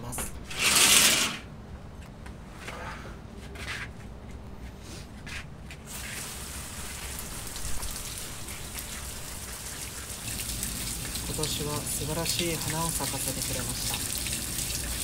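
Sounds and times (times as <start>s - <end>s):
garden hose spraying water: 5.9s - 15.0s.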